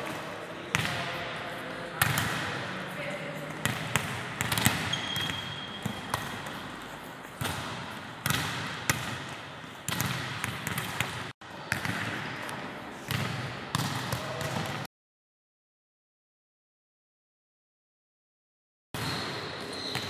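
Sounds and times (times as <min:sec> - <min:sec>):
volleyballs struck and bouncing: 0:00.0 - 0:14.9.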